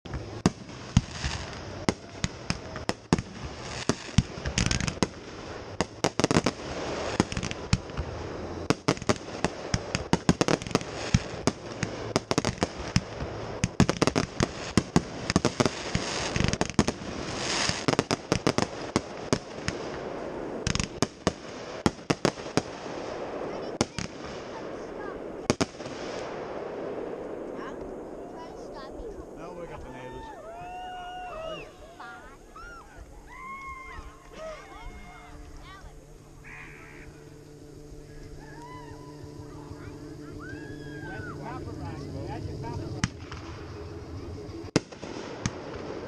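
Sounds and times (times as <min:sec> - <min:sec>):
fireworks bangs and pops: 0:00.1 - 0:28.0, 0:42.5 - 0:43.7, 0:44.7 - 0:46.0
fireworks hiss: 0:00.1 - 0:46.0.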